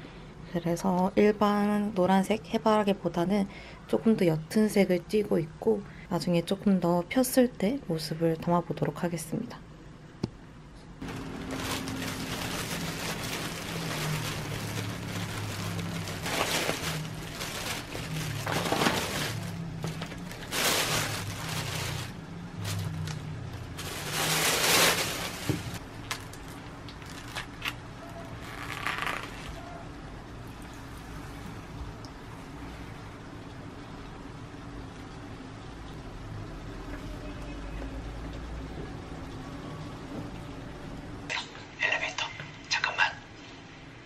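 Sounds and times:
plastic bag rustling and crinkling: 11.0 - 29.7.

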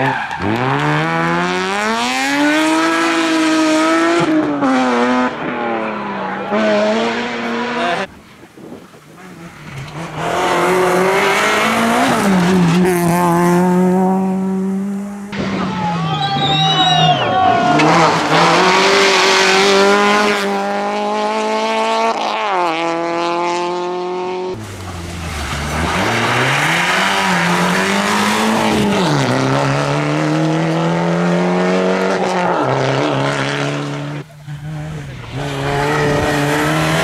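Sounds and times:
rally car engines revving: 0.0 - 37.0
tyres on gravel: 24.6 - 29.2.

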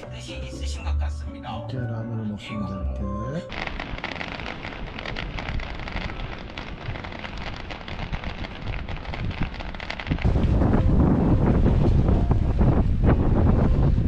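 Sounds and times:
firecrackers crackling: 3.5 - 13.6
wind rumble on microphone: 3.5 - 14.0.

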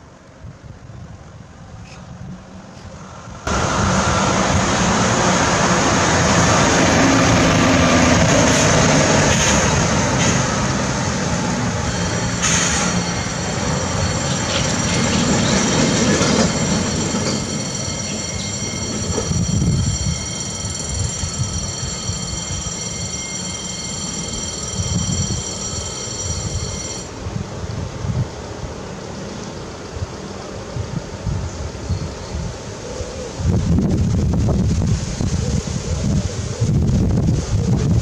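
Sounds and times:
heavy road traffic rumbling: 0.1 - 31.6
level crossing warning bell: 11.6 - 27.2.

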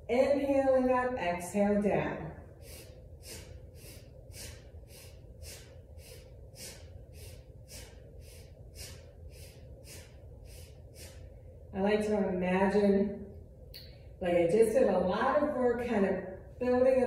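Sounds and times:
woman breathing forcefully: 2.4 - 11.7.

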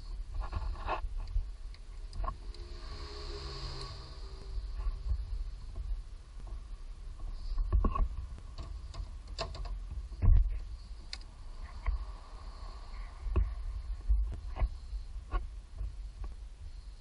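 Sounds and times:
low rumble: 0.0 - 17.0
tools clicking and knocking: 7.8 - 9.8.

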